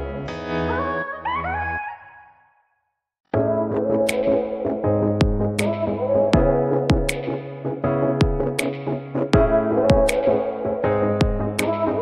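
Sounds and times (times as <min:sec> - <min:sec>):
synthesizer chords: 0:00.0 - 0:02.0, 0:03.4 - 0:12.0
drum machine beat: 0:05.2 - 0:05.8, 0:06.4 - 0:07.4, 0:08.2 - 0:08.8, 0:09.4 - 0:10.4, 0:11.2 - 0:11.9.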